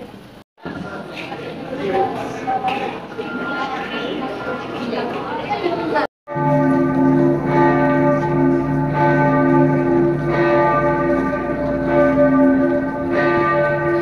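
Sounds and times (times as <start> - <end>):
church bells ringing: 3.0 - 14.0.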